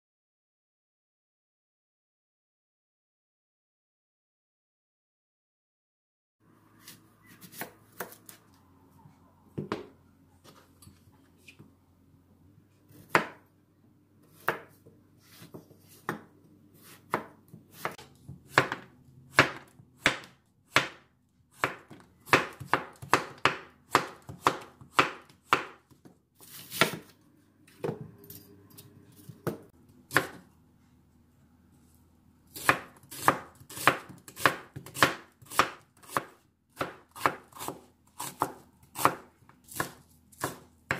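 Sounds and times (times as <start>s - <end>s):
knife chopping on wooden board: 12.9s - 13.4s, 14.3s - 27.1s, 29.2s - 30.5s, 32.5s - 40.9s.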